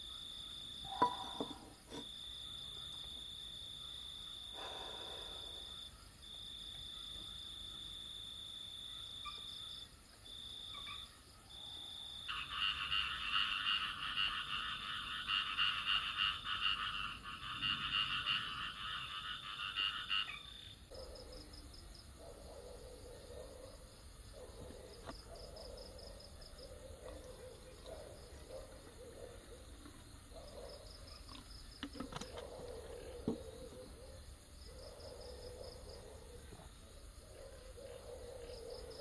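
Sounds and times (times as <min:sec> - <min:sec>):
frogs calling in rapid pulses: 0:10.5 - 0:11.2, 0:11.8 - 0:39.0.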